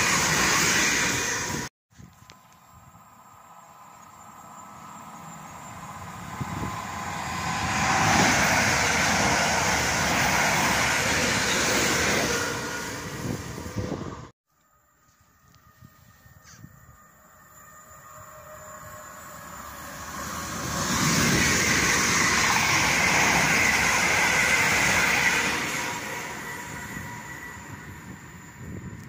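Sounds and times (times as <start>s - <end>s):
train wheels on rails: 0.0s - 14.3s, 18.0s - 29.0s.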